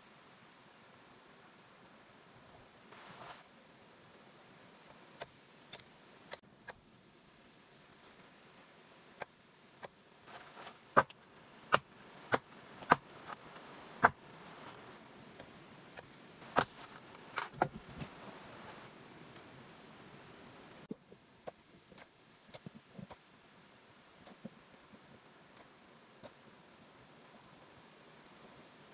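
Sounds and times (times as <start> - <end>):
blade chopping wooden pole: 16.5 - 17.8.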